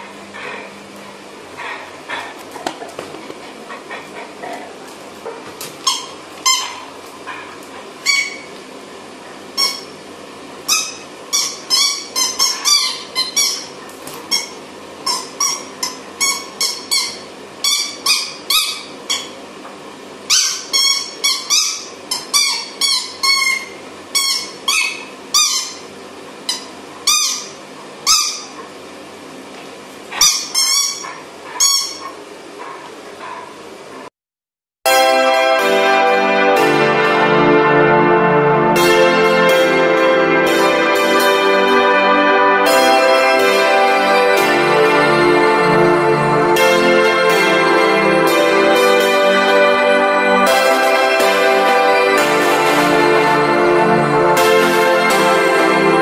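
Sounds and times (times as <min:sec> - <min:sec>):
squeaky toy squeaking: 0:10.7 - 0:19.3, 0:20.3 - 0:25.8, 0:30.2 - 0:32.1.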